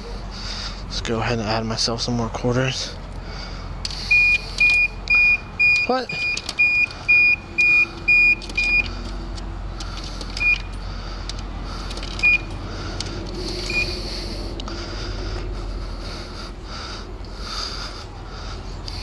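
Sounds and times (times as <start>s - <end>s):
steady low hum: 0.0s - 19.0s
short high beeps: 4.1s - 8.9s.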